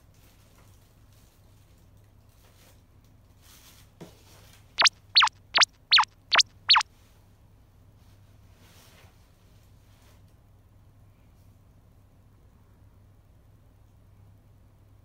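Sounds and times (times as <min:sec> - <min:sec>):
high descending chirps: 0:04.8 - 0:06.8.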